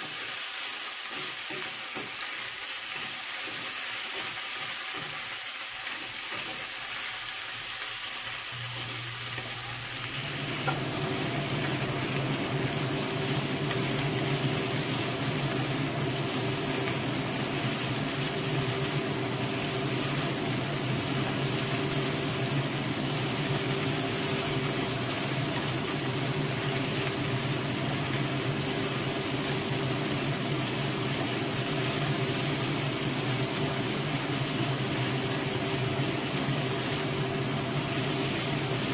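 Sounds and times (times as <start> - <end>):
spatula stirring in pan: 0.0 - 7.8, 8.8 - 38.9
shrimp sizzling in a frying pan: 0.0 - 38.9
steady hum: 8.5 - 38.9.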